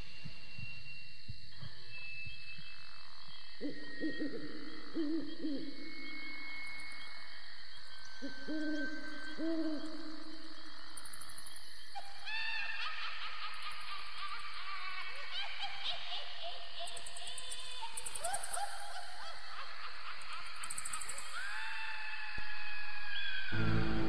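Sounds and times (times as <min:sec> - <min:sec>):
owl hooting: 0:03.6 - 0:06.2, 0:08.2 - 0:10.2.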